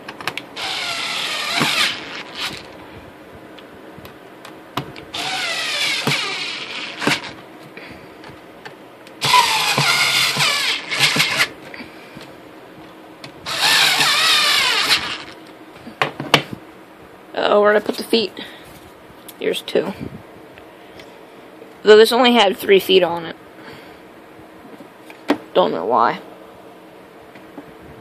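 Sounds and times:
electric screwdriver motor whine: 0.6 - 2.8, 5.2 - 7.4, 9.2 - 11.5, 13.5 - 15.4.

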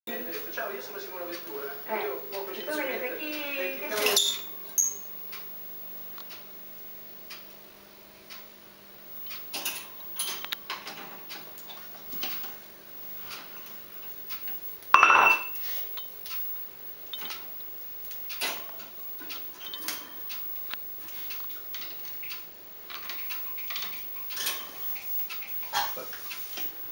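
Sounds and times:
birds clicking on cage bars: 9.5 - 11.4.

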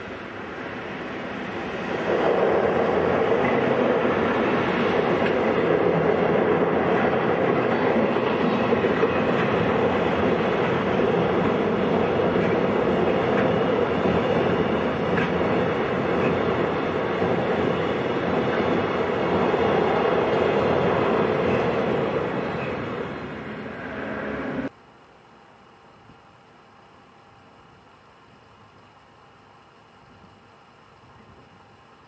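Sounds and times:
freight train crossing steel bridge: 0.0 - 24.7.

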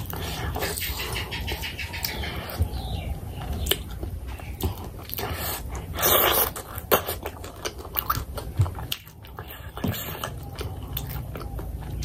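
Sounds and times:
chewing clicks: 4.6 - 12.0.

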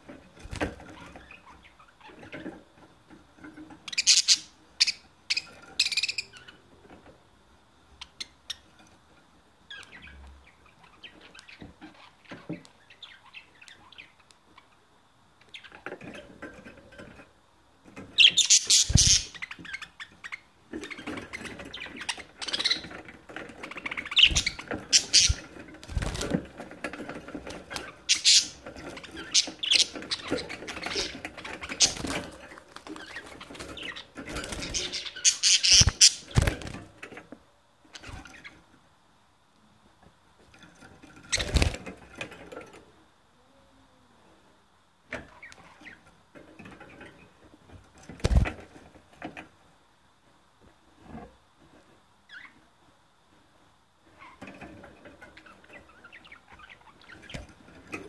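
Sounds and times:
budgerigars chirping: 3.9 - 6.6, 18.2 - 22.9, 23.7 - 25.5, 27.7 - 32.3, 33.0 - 36.4.

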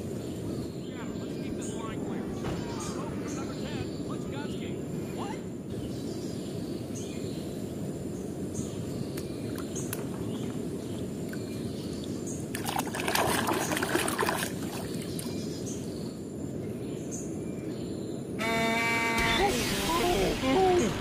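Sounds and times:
low rushing background: 0.0 - 9.1
water splashing and sloshing: 9.2 - 11.6, 12.4 - 15.6.

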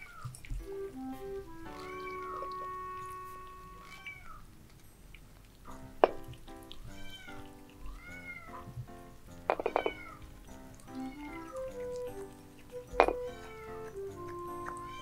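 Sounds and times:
background music: 0.6 - 4.1, 5.7 - 15.0
kittens meowing: 1.8 - 4.4, 9.6 - 10.3, 10.9 - 12.0, 13.0 - 14.0, 14.6 - 15.0.

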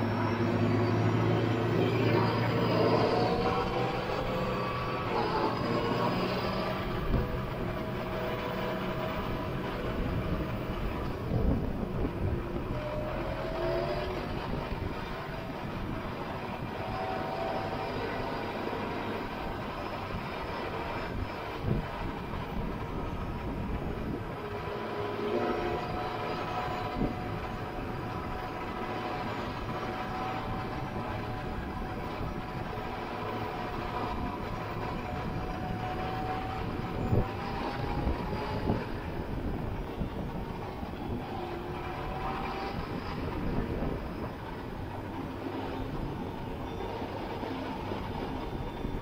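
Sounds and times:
tractor diesel engine running: 0.0 - 49.0.

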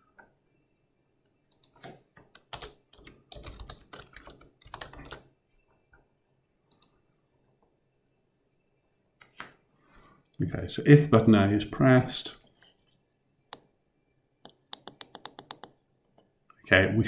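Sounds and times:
typing on computer keyboard: 1.5 - 5.3, 14.5 - 15.8.

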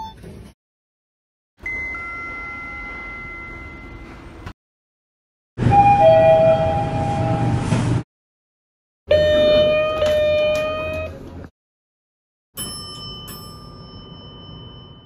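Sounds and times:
high bright elevator chime: 1.6 - 4.5, 12.6 - 15.0
low elevator ding: 1.6 - 4.5, 12.6 - 15.0.

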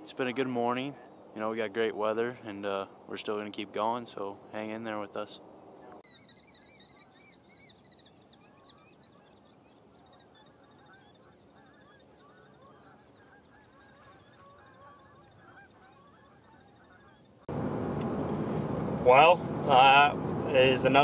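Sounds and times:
distant geese honking: 4.6 - 21.0.

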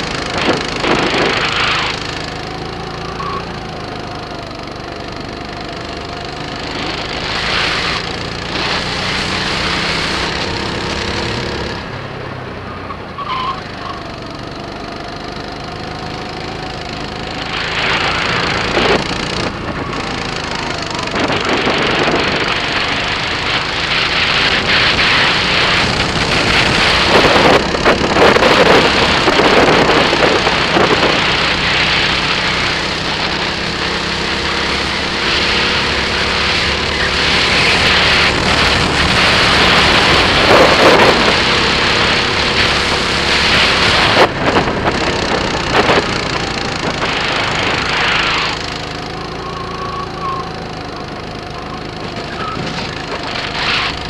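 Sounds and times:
wind rushing over microphone: 0.0 - 3.1, 16.0 - 54.0
kart engine running: 0.0 - 54.0.

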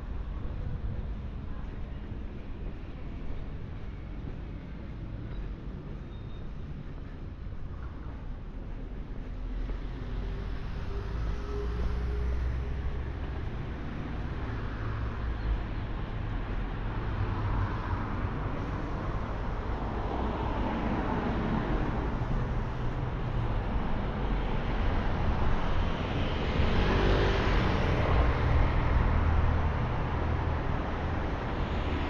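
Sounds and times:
low traffic rumble: 0.0 - 32.0
cars passing close by: 9.6 - 32.0.

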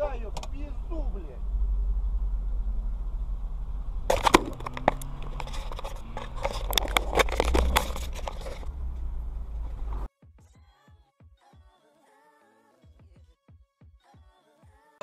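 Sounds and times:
steady low rumble: 0.0 - 10.1
camera handling noise: 4.1 - 8.7.

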